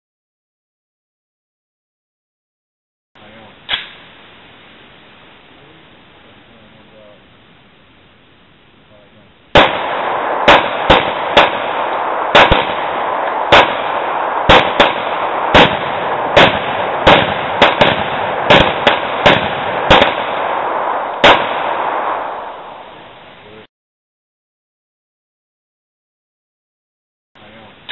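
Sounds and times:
handgun shots: 0:09.6 - 0:22.2.

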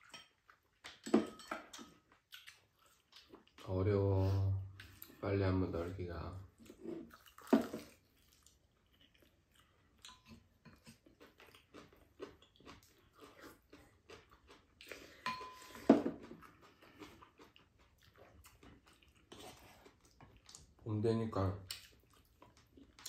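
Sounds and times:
quiet chewing: 0:01.6 - 0:05.2, 0:06.5 - 0:20.8, 0:21.6 - 0:23.0.

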